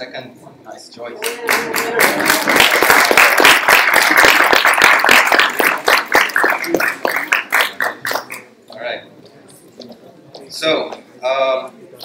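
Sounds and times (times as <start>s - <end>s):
audience applauding: 1.2s - 8.5s.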